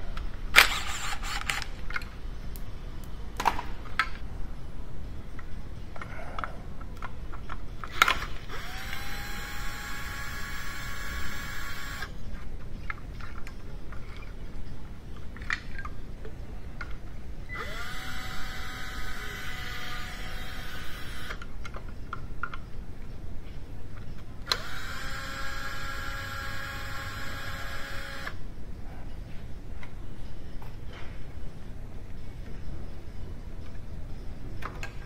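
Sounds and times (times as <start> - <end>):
cordless drill whining: 8.0 - 12.1, 17.5 - 21.4, 24.5 - 28.4.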